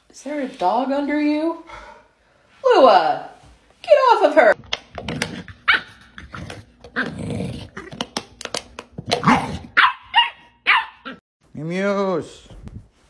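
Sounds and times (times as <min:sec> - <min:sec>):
dogs growling: 0:05.2 - 0:08.0
dogs barking sharply: 0:09.2 - 0:11.2.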